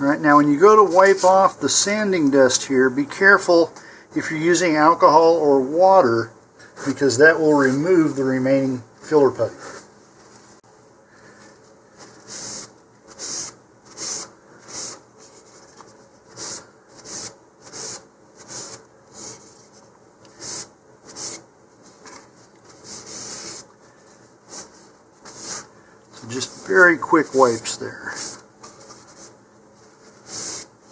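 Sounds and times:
paper towel rubbing plastic: 12.0s - 23.7s, 24.5s - 30.9s.

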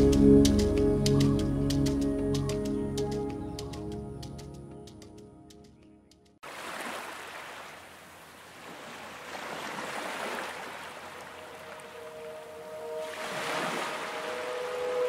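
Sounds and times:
soft background music: 0.0s - 6.1s, 11.2s - 15.0s
sustained musical tones: 0.0s - 6.1s, 11.2s - 15.0s.

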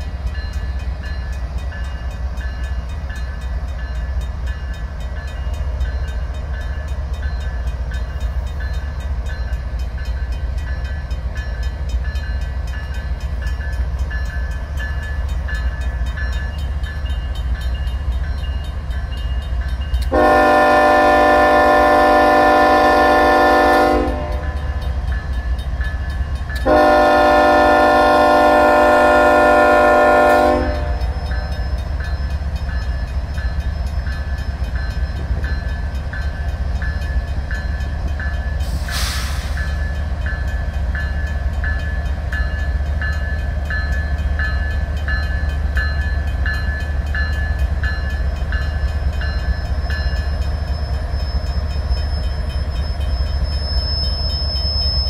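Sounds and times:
crossing bell ringing: 0.0s - 55.0s
locomotive air horn blasts: 20.1s - 24.6s, 26.6s - 31.1s
brief hiss: 38.7s - 39.8s.

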